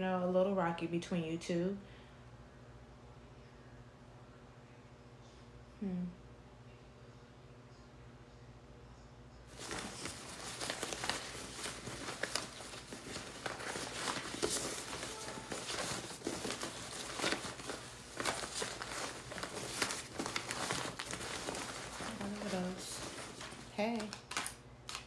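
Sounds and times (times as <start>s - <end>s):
crackling and rustling of handling: 9.5s - 25.0s.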